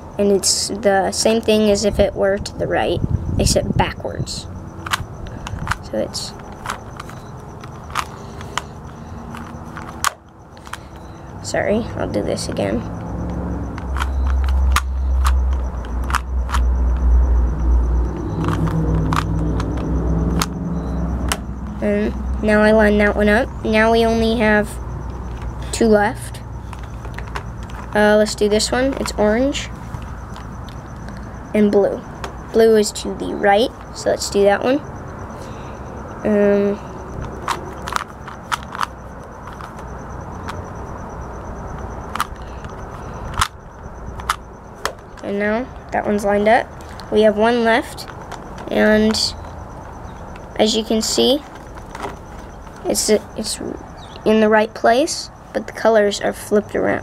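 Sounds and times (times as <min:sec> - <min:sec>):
steady low rumble: 0:00.0 - 0:57.0
puzzle cube clicking: 0:04.8 - 0:11.0, 0:13.3 - 0:17.0, 0:17.6 - 0:20.6, 0:37.2 - 0:40.6, 0:42.0 - 0:43.6.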